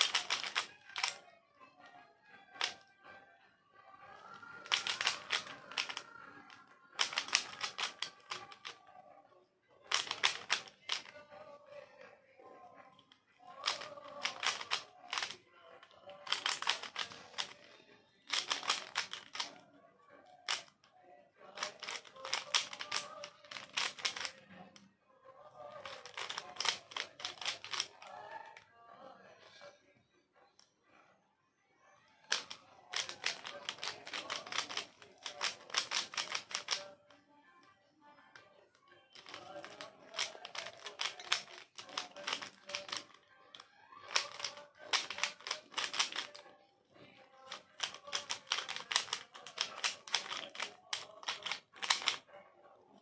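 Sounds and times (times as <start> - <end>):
puzzle cube plastic clicking: 0.0 - 1.2, 2.5 - 2.8, 4.1 - 8.8, 9.8 - 11.2, 13.5 - 19.6, 20.4 - 20.8, 21.4 - 24.7, 25.6 - 28.6, 32.3 - 37.0, 39.2 - 52.2.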